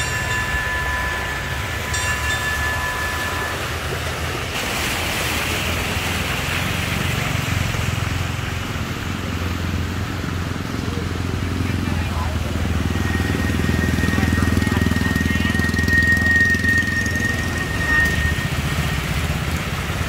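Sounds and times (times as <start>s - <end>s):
motorbike engines humming: 0.0s - 4.6s, 5.3s - 20.0s
water splashing from wheels: 0.0s - 20.0s.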